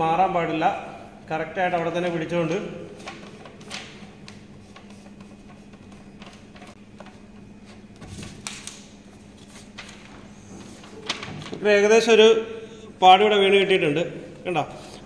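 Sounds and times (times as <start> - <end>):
paper rustling: 2.9 - 11.8.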